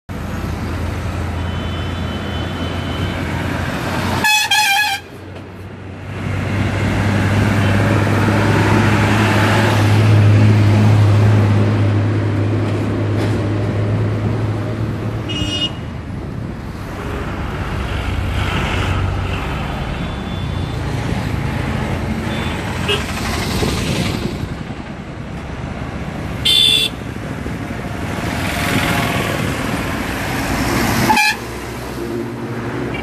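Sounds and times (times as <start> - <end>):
traffic rumble on bridge: 0.1 - 33.0
loud vehicle horn blaring: 4.2 - 5.2, 15.3 - 15.8, 26.4 - 27.0, 31.1 - 31.4.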